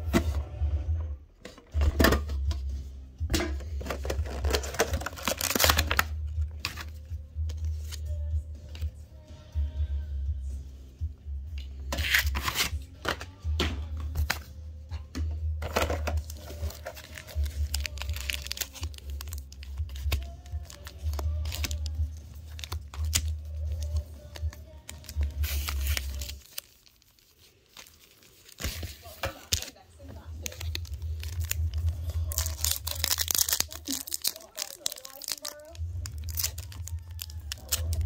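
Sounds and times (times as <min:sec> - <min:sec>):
foil wrapper crinkling and tearing: 0:04.0 - 0:07.0, 0:12.0 - 0:12.7, 0:15.7 - 0:38.0.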